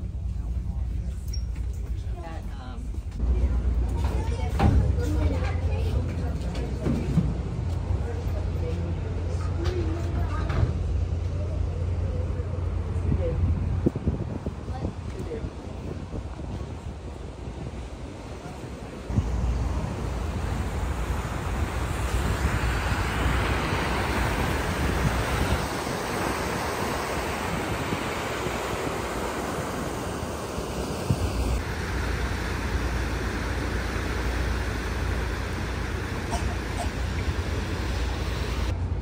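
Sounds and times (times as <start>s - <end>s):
wind buffeting microphone: 12.6s - 32.1s.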